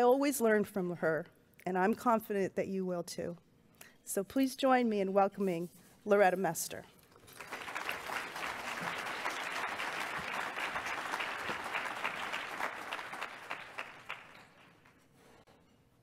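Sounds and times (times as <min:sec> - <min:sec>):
audience applauding: 0:07.2 - 0:15.1.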